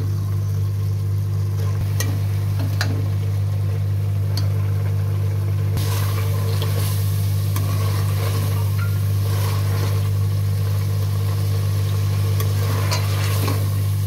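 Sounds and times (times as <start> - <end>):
food sizzling in oil: 0.0 - 14.0
steady low hum: 0.0 - 14.0
metal ladle scraping a pan: 5.8 - 10.1, 12.4 - 13.9.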